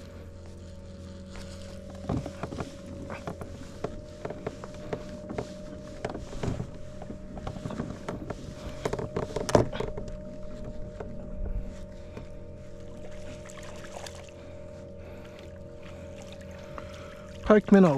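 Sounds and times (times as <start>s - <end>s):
boat motor humming: 0.0s - 17.9s
fishing gear clicks and knocks: 0.3s - 11.6s.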